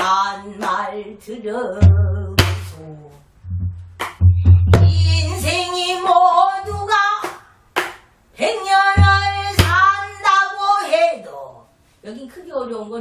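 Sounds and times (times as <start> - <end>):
barrel drum strokes: 3.4 - 5.6, 9.0 - 9.9
woman singing wavering voice: 4.8 - 7.2, 8.4 - 11.6.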